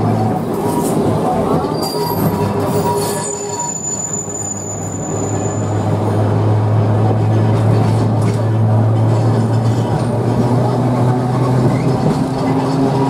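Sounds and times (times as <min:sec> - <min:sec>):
tram wheel and rail rumble: 0:00.0 - 0:13.0
high wheel squeal: 0:00.5 - 0:06.0.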